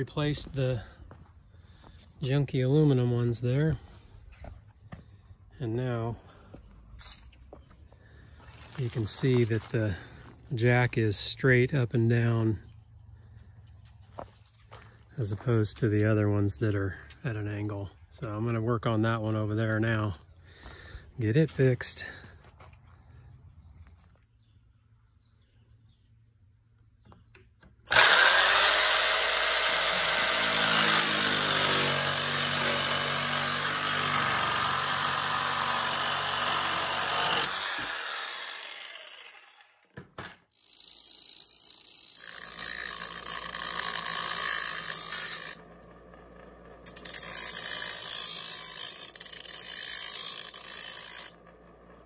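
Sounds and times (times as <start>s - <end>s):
bench grinder grinding metal: 27.9s - 52.0s
jigsaw cutting metal: 27.9s - 52.0s.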